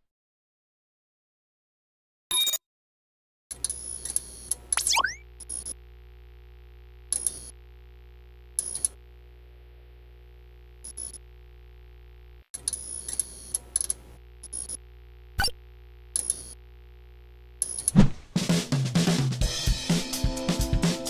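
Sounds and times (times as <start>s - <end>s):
electronic clicks: 3.5s - 5.8s, 7.1s - 7.6s, 8.6s - 9.0s, 10.8s - 11.2s, 12.6s - 14.8s, 15.4s - 16.6s, 17.6s - 18.0s
steady electronic hum: 3.7s - 18.4s
high electronic beeps: 4.8s - 5.2s.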